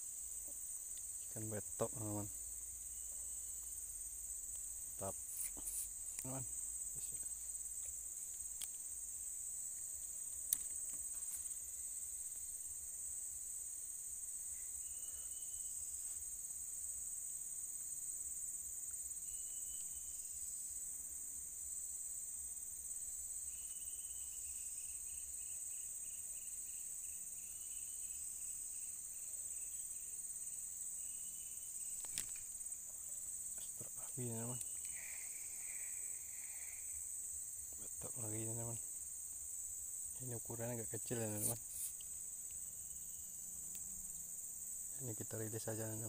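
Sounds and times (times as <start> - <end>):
insect chorus drone: 0.0 - 46.0
sharp click: 32.0 - 32.5.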